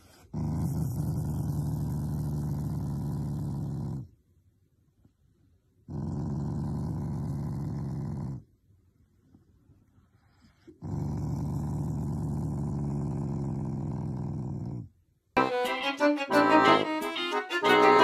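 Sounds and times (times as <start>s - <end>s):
dog growling low: 0.0s - 4.2s, 5.9s - 8.5s, 10.6s - 15.0s.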